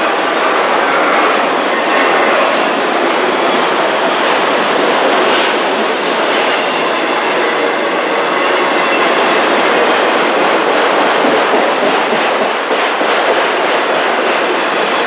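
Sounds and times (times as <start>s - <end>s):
train wheels rolling on rails: 0.0s - 15.0s
train wheels clattering: 8.9s - 15.0s.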